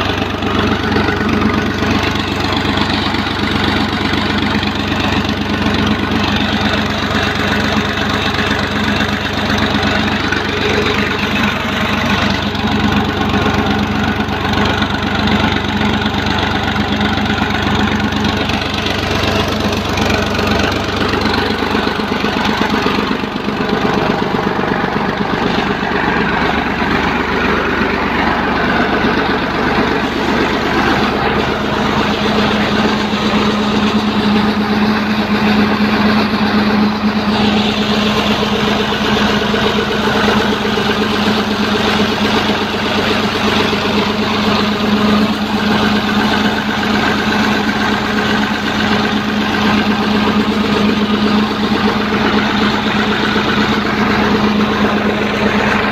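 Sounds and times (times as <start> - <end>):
tractor diesel engine running: 0.0 - 55.9.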